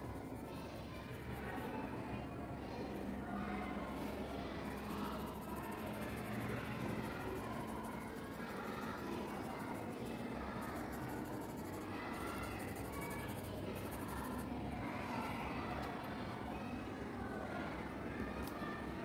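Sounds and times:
low background hum: 0:00.0 - 0:19.0
pencil scratching on paper: 0:04.7 - 0:09.9, 0:10.5 - 0:14.5.

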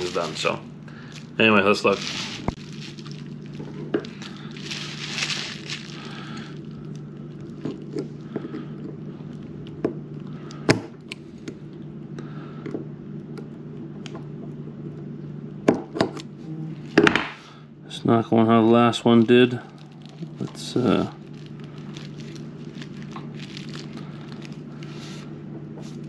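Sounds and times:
low hum: 0:00.0 - 0:15.6, 0:16.2 - 0:26.0.

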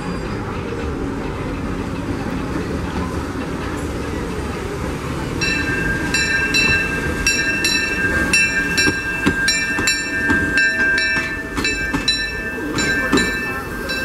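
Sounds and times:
steam locomotive bell ringing: 0:00.0 - 0:01.4, 0:05.2 - 0:14.0
train rumbling past: 0:00.0 - 0:14.0.

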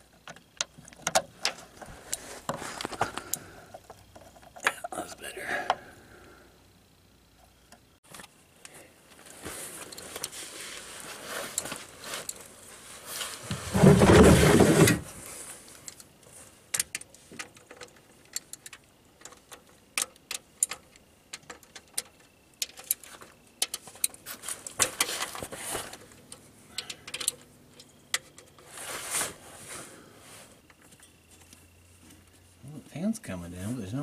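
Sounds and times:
loud rustling scrape: 0:09.3 - 0:15.7, 0:28.6 - 0:30.6.

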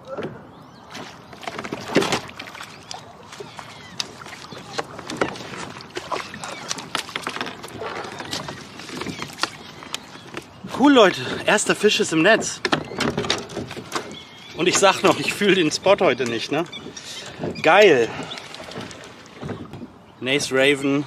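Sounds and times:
water noise: 0:00.0 - 0:21.0.

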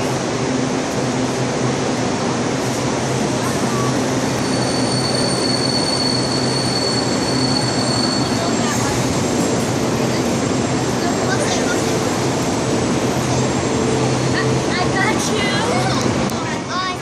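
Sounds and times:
train rumbling: 0:00.0 - 0:17.0
high wheel squeal: 0:03.6 - 0:11.6.

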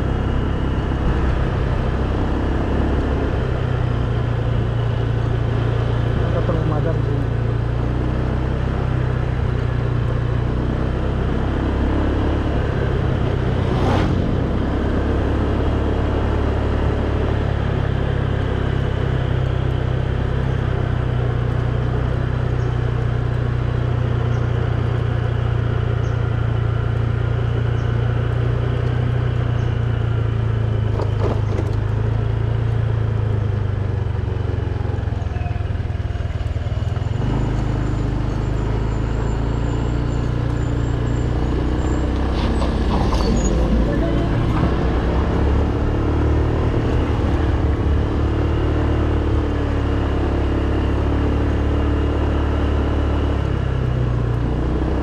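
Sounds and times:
motorcycle engine running: 0:00.0 - 0:55.0
riding noise: 0:40.9 - 0:50.6.

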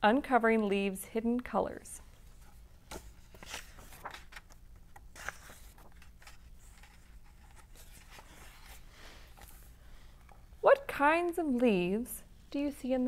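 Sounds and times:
paper pages rustling: 0:02.2 - 0:09.8.

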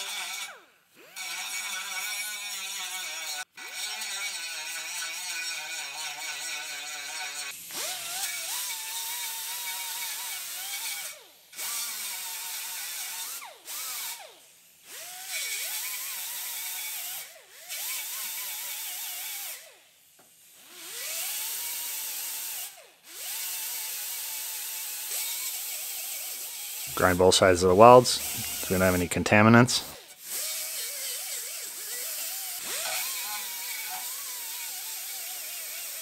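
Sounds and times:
power grinder whining on steel: 0:00.0 - 0:19.8, 0:20.6 - 0:36.0.

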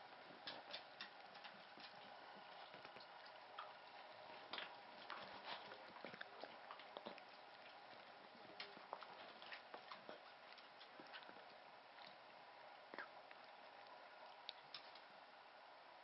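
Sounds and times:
dog licking wet clicks: 0:00.4 - 0:12.2.

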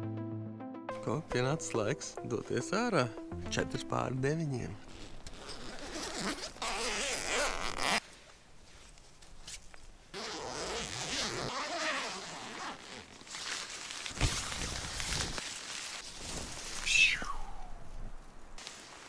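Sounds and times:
tent zipper unzipping: 0:04.9 - 0:08.0, 0:10.1 - 0:13.1.

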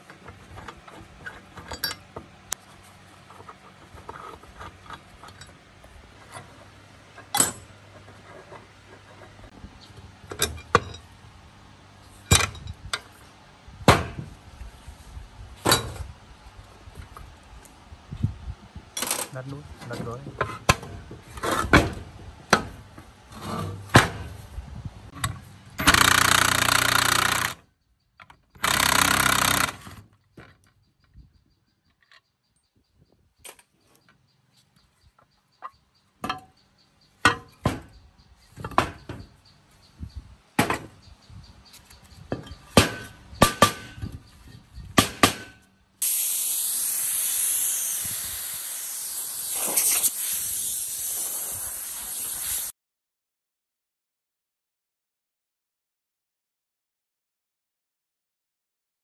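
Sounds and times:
cordless drill running: 0:25.8 - 0:27.6, 0:28.6 - 0:29.8
loud steady hissing: 0:46.0 - 0:52.7.

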